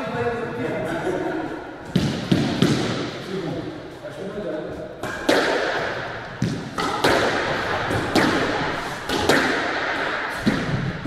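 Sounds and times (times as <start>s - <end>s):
squash ball smacks echoing: 1.8s - 3.4s, 5.0s - 11.0s.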